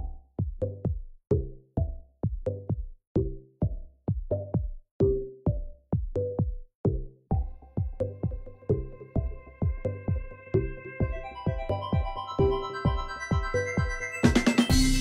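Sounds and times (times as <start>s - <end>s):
electronic music with sharp beat: 0.0s - 15.0s
sustained high tones: 11.0s - 15.0s.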